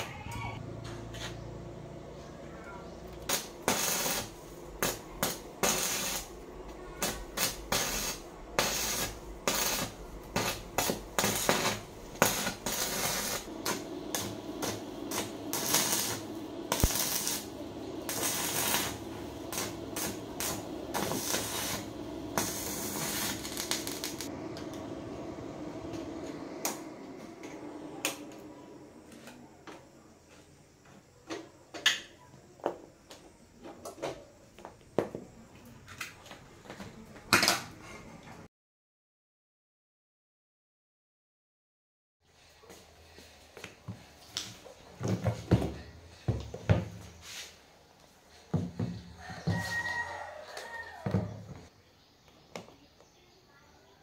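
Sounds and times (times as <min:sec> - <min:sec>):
low steady hum: 0:00.2 - 0:30.1
welding arc crackling: 0:03.1 - 0:28.4.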